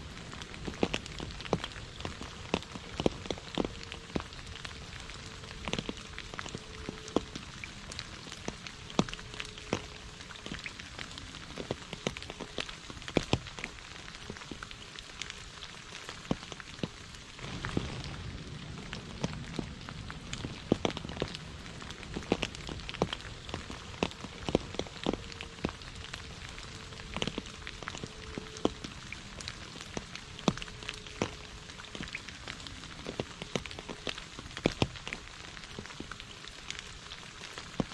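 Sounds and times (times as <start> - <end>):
rain falling on puddles: 0.0 - 37.9
low rumble: 17.3 - 29.0.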